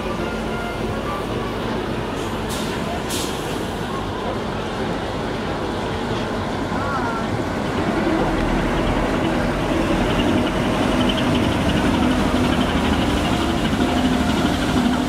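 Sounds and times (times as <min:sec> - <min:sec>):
boat diesel engine droning: 0:00.0 - 0:15.0.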